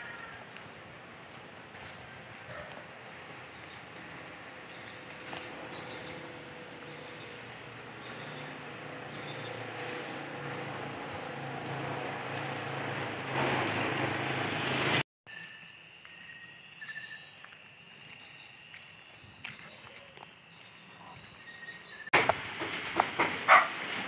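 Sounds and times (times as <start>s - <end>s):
vehicle approaching: 0.0s - 15.0s
insects trilling: 15.3s - 22.1s.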